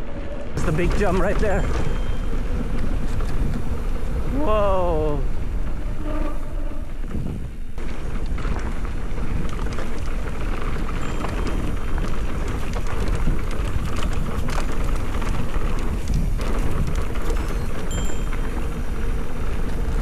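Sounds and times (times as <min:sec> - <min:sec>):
tyres crackling over dirt and stones: 0:00.0 - 0:05.9, 0:06.9 - 0:20.0
bike clicks and clatters: 0:00.0 - 0:20.0
wind rumble on microphone: 0:00.0 - 0:20.0.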